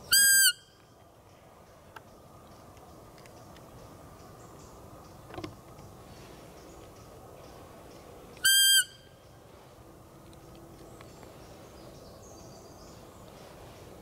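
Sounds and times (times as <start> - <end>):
high deer call whistle: 0.0 - 0.7, 8.4 - 9.1.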